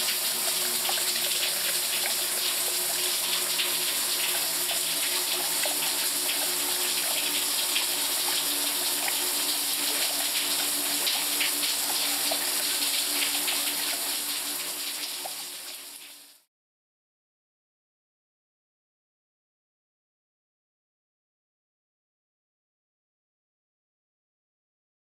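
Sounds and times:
tap water running into basin: 0.0 - 16.5.

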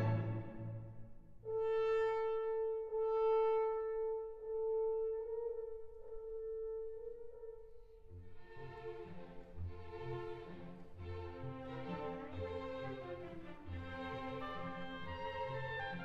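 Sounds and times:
strings playing: 0.0 - 1.6.

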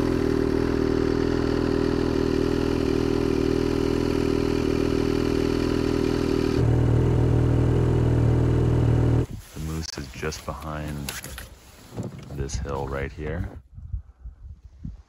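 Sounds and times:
snowmobile engine idling: 0.0 - 11.5.

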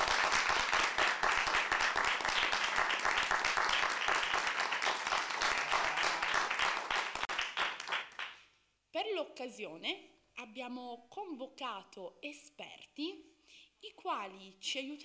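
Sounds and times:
audience applause: 0.0 - 8.4.

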